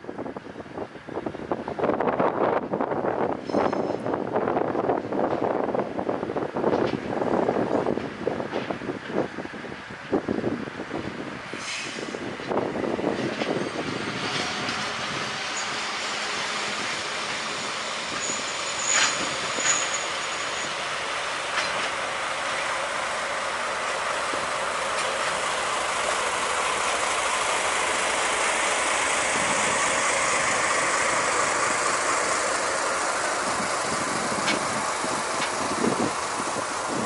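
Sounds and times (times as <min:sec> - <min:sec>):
diesel locomotive running: 0:00.0 - 0:37.0
thin high squeal: 0:18.1 - 0:20.8.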